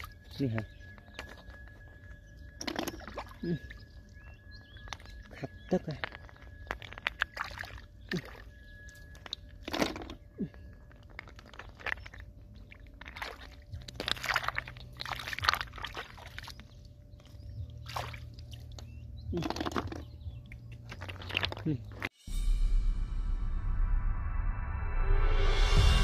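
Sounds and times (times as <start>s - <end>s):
hands splashing in muddy puddle: 4.8s - 8.5s, 11.0s - 22.1s
snail shells clicking: 9.2s - 15.9s, 20.7s - 22.1s.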